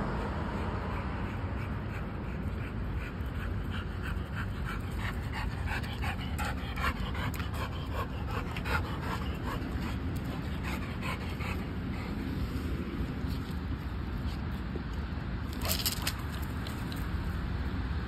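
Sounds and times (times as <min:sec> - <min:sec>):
dog panting quickly: 0:00.6 - 0:12.9.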